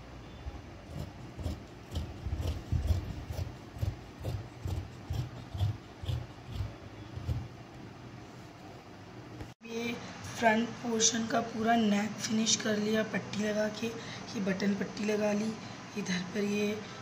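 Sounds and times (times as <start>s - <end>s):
shears snipping fabric: 0.8s - 7.5s.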